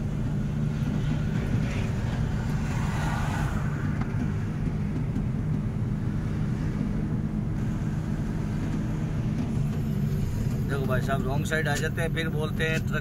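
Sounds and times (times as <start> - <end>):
road noise: 0.0 - 13.0
truck engine running: 3.6 - 13.0.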